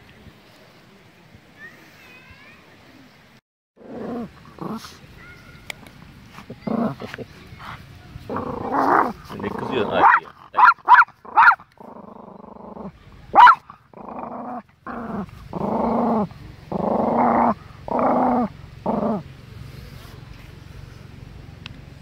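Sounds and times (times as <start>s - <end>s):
small dog growling: 3.8s - 5.0s, 6.4s - 20.0s
small dog yapping: 9.8s - 11.6s, 13.3s - 13.6s.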